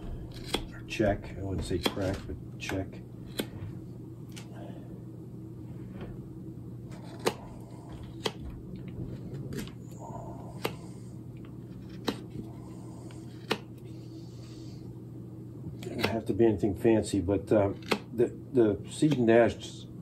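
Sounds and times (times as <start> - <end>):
steady low hum: 0.0 - 20.0
knife cuts snapping through wood: 0.3 - 0.8, 1.6 - 3.5, 7.0 - 8.4, 11.8 - 12.4, 13.3 - 13.7, 15.8 - 16.2, 17.8 - 18.2.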